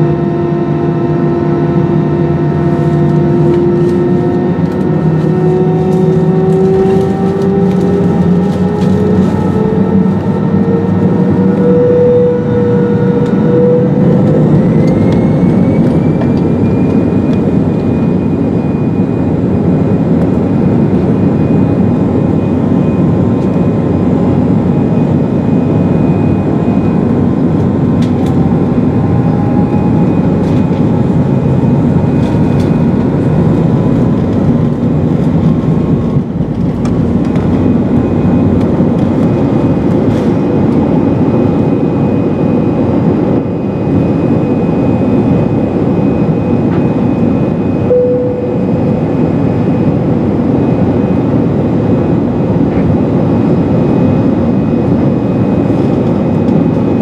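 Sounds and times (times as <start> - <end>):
jet engines roaring: 0.0 - 57.0.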